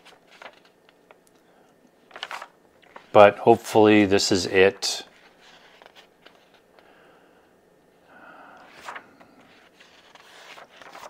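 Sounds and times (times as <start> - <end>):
comic book pages turning: 0.0 - 1.2, 2.1 - 3.2, 5.1 - 6.7, 8.6 - 11.0.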